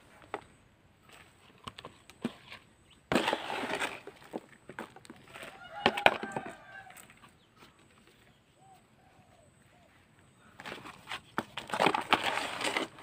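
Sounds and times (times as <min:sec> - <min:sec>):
soil scraping and knocks: 0:00.0 - 0:08.3, 0:10.5 - 0:13.0
potting soil pouring: 0:02.2 - 0:04.5, 0:11.6 - 0:13.0.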